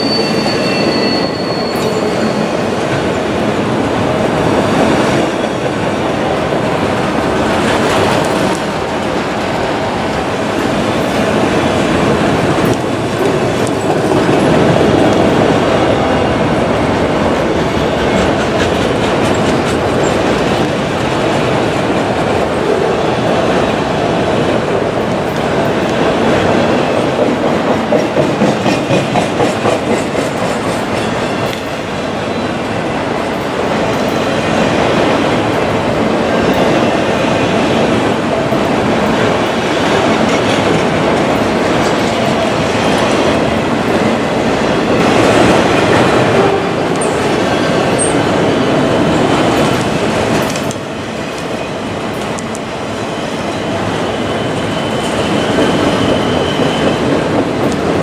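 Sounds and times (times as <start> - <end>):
steel wheels rumbling on rail: 0.0 - 58.0
rhythmic clickety-clack: 16.7 - 22.5, 25.1 - 31.8.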